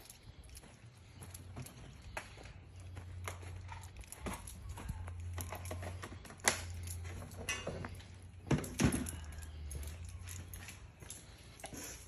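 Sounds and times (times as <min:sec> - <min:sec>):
footsteps on grass and concrete: 0:00.0 - 0:06.2.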